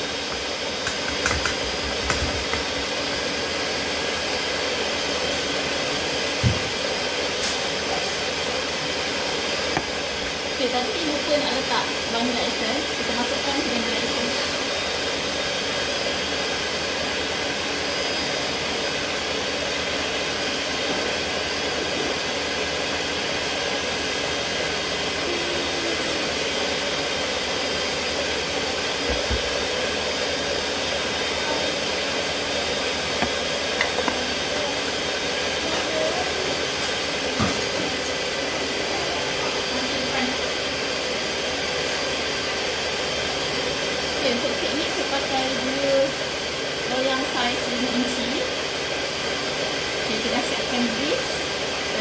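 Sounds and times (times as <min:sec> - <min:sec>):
electric stand mixer running: 0:00.0 - 0:52.0.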